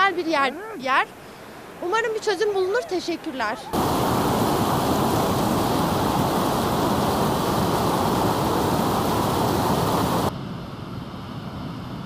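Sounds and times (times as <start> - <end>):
waterfall rushing: 2.7 - 10.3.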